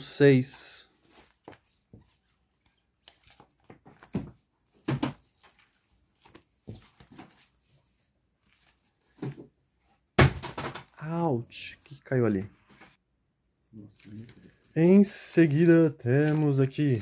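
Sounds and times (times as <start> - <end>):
comic books knocking and rustling: 3.2 - 7.7, 8.6 - 11.0.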